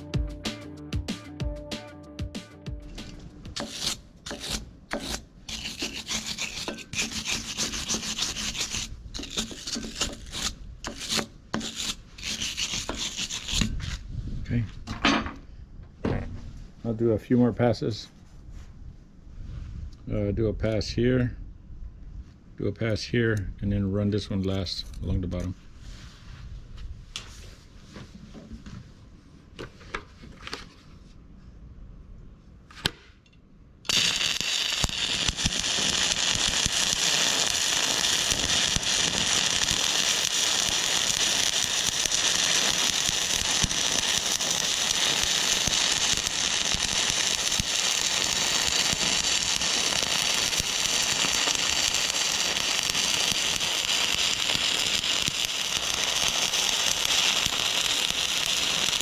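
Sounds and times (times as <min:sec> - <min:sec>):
welding arc crackling: 0:03.0 - 0:13.8, 0:33.9 - 0:59.0.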